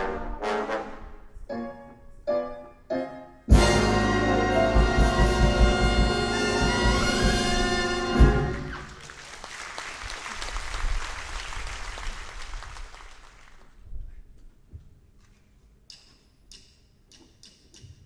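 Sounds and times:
big band final chord: 0:03.5 - 0:08.7
audience applauding: 0:08.4 - 0:13.8.

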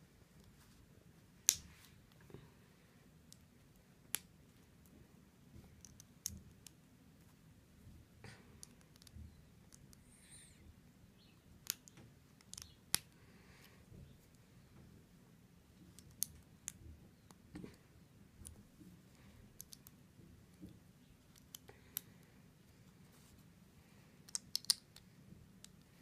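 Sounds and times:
plastic pieces clicking together: 0:11.6 - 0:13.1, 0:19.6 - 0:20.0, 0:24.2 - 0:25.0.

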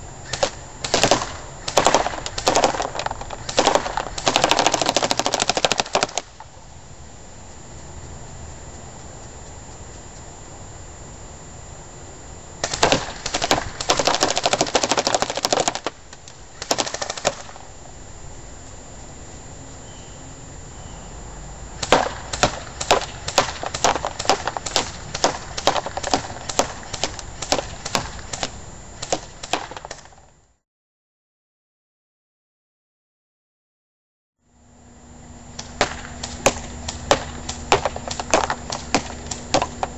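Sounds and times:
airsoft rifle firing: 0:00.2 - 0:06.5, 0:12.6 - 0:16.0, 0:16.6 - 0:17.6, 0:21.8 - 0:30.1, 0:35.6 - 0:39.9.

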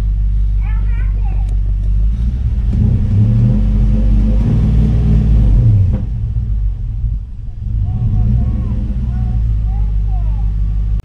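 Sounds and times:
engine revving deep rumble: 0:00.0 - 0:11.0.

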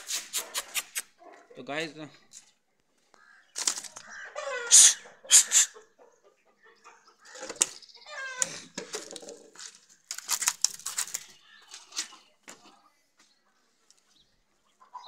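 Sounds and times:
chickens clucking and squawking: 0:02.9 - 0:09.4, 0:11.6 - 0:15.0.

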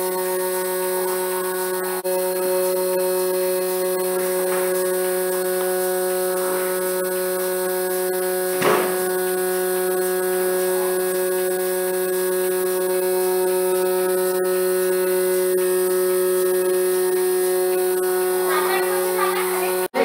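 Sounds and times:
vacuum pump motor humming: 0:00.0 - 0:20.0
short knock: 0:08.6 - 0:09.0.

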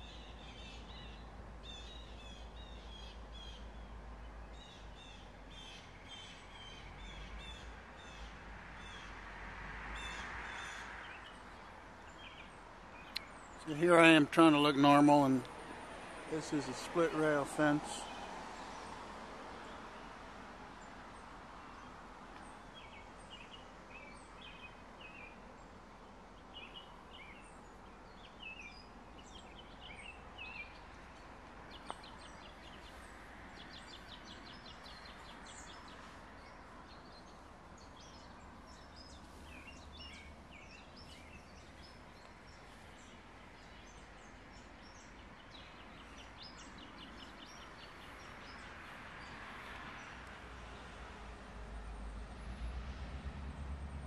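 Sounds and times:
birds chirping and trilling: 0:00.0 - 0:09.2, 0:10.0 - 0:15.5, 0:26.4 - 0:50.1.

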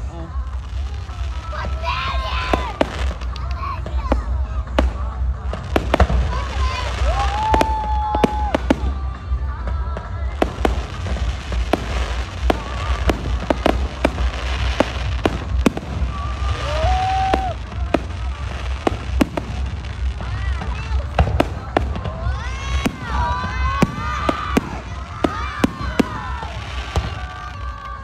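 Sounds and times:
fireworks bangs and crackles: 0:00.0 - 0:28.0.

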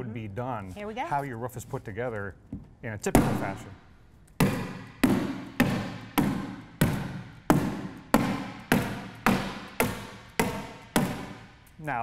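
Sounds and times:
hammer tacker strikes: 0:04.4 - 0:11.6.

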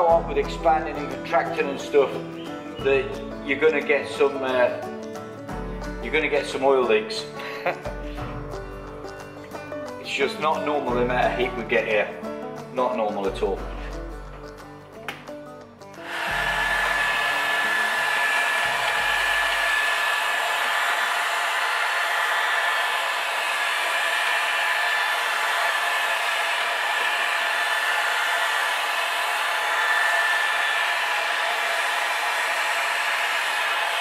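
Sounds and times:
heat gun blowing air: 0:16.1 - 0:34.0
high fan whine: 0:16.1 - 0:34.0.

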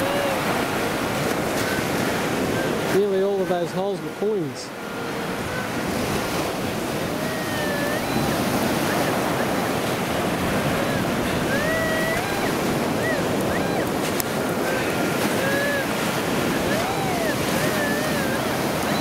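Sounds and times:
surf breaking on beach: 0:00.0 - 0:19.0
wind on microphone: 0:00.0 - 0:19.0
metal detector rising beep: 0:07.2 - 0:09.5, 0:11.5 - 0:13.9, 0:16.6 - 0:19.0.

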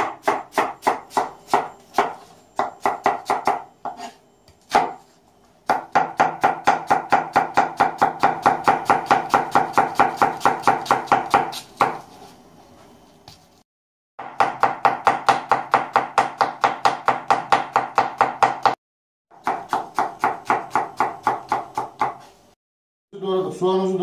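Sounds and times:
knife chopping onion on board: 0:00.0 - 0:05.0, 0:05.7 - 0:12.1, 0:14.2 - 0:18.8, 0:19.4 - 0:22.3.

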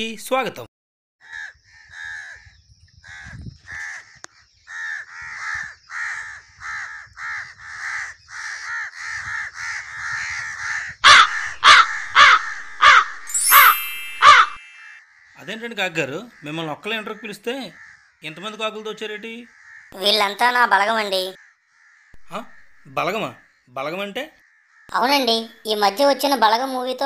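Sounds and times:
crows cawing: 0:01.2 - 0:13.3, 0:14.2 - 0:15.5, 0:16.2 - 0:20.1, 0:21.4 - 0:23.7, 0:24.4 - 0:25.1.

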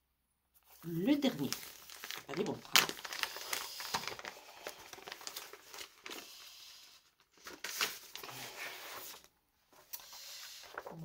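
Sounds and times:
paper sheet rustling: 0:00.6 - 0:11.0
plastic packaging crinkling: 0:00.7 - 0:06.5.

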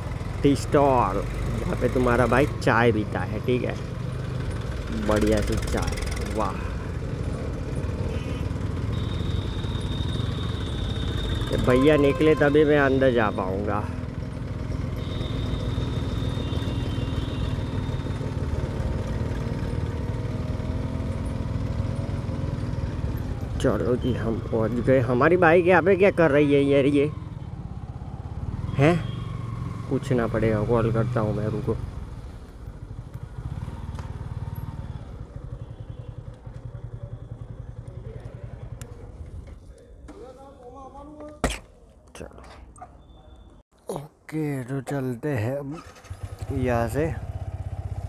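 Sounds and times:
motorcycle engine running: 0:03.7 - 0:12.2, 0:13.6 - 0:23.6, 0:31.8 - 0:39.5, 0:45.9 - 0:48.0.

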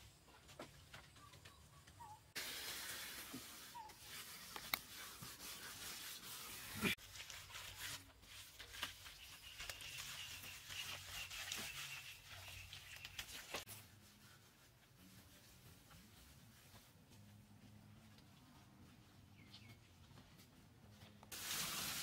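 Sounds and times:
wet mud rubbing and squelching: 0:03.4 - 0:13.7.

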